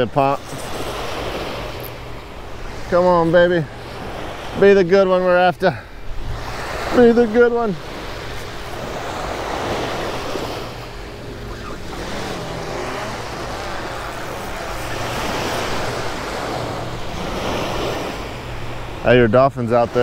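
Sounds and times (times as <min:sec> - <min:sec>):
surf washing up a beach: 0:00.0 - 0:20.0.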